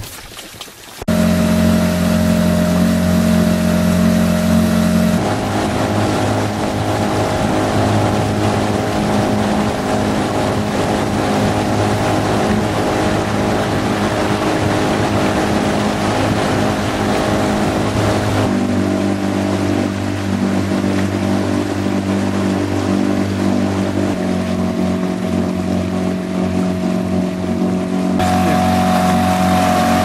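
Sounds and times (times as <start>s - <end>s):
motorboat engine running: 1.0s - 30.0s.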